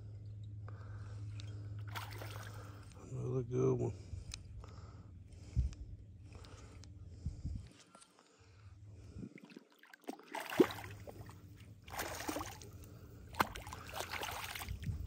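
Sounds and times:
fish splashing at water surface: 1.9s - 2.7s, 9.4s - 15.0s.

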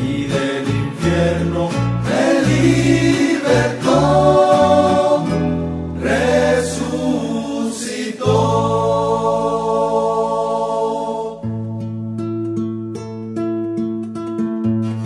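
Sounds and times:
group of voices singing chords: 0.0s - 11.8s
guitars and bass: 0.0s - 15.0s.

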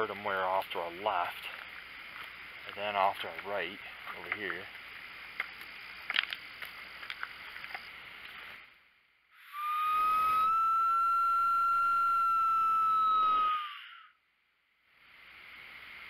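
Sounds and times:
faint clicks and rustles: 1.4s - 8.6s
long whistle on a mouth call: 9.4s - 14.2s.

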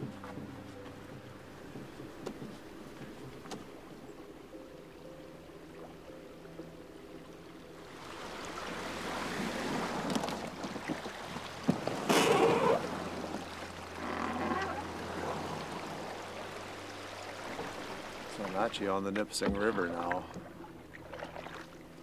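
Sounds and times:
water sloshing and splashing: 7.2s - 22.0s.

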